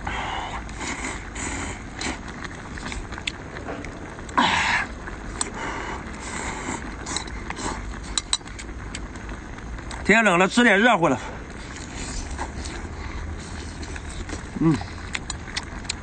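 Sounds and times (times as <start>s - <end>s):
slurping noodles: 0.6s - 3.6s, 11.4s - 16.0s
chewing: 0.6s - 4.4s, 11.5s - 16.0s.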